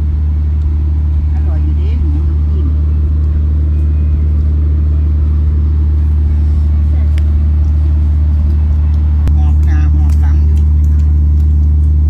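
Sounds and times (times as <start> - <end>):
engine droning: 0.0 - 12.0
faint voices: 5.8 - 11.3.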